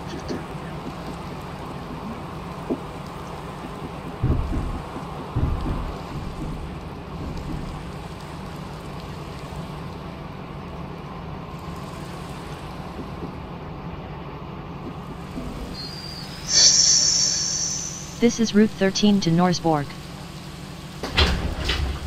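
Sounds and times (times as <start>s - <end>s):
train wheels rumbling on rail: 0.0s - 10.8s, 20.1s - 22.0s
high-pitched squeal: 15.6s - 18.4s.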